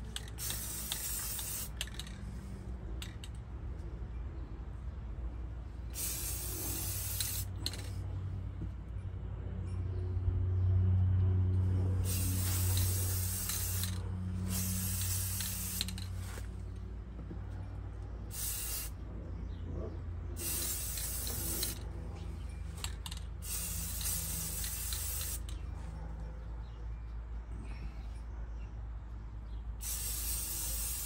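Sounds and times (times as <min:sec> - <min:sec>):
aerosol spray can hissing: 0:00.0 - 0:02.1, 0:06.0 - 0:07.9, 0:12.0 - 0:16.4, 0:18.3 - 0:18.9, 0:20.4 - 0:21.8, 0:23.4 - 0:25.5, 0:29.8 - 0:31.0.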